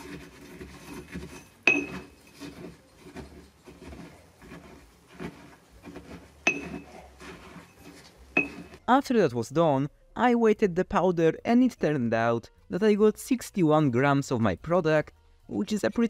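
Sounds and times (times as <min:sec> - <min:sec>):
pestle clinking on bowl: 0:00.0 - 0:08.8
pestle crushing and scraping: 0:00.0 - 0:08.9.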